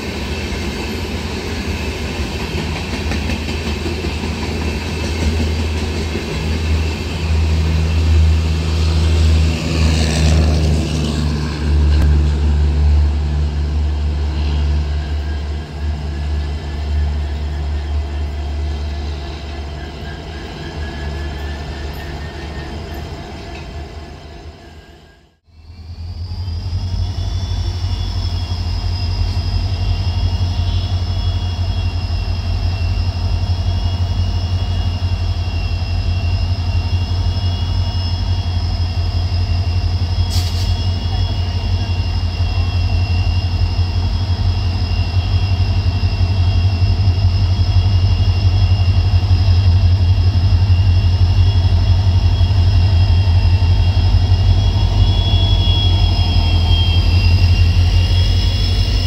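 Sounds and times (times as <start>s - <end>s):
diesel locomotive engines throbbing: 0.0s - 59.0s
steady high whine: 25.8s - 59.0s.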